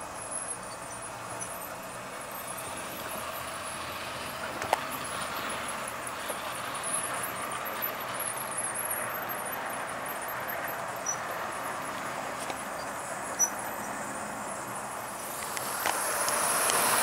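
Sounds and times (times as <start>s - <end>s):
model train whirring and rattling: 0.0s - 17.0s
sharp clicks: 15.2s - 17.0s.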